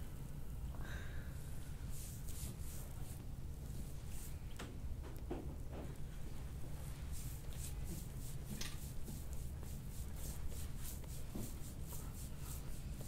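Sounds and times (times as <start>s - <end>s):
rubbing strokes on oiled skin: 1.8s - 4.4s, 6.7s - 13.0s.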